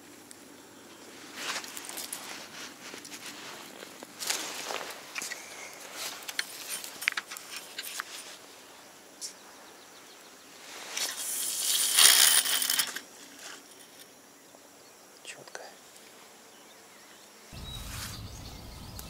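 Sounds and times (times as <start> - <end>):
line hissing off spool: 10.8 - 13.0
fishing reel clicks: 11.2 - 13.0.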